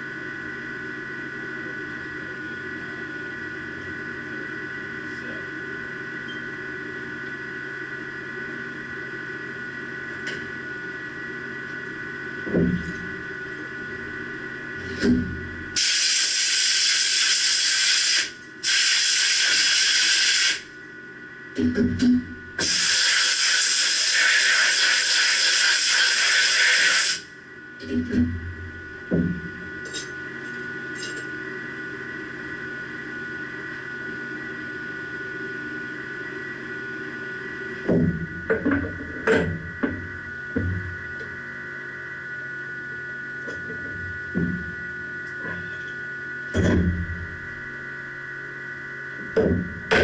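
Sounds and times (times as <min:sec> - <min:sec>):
machine shop equipment hum: 0:00.0 - 0:50.0
whining machine tones: 0:19.8 - 0:50.0.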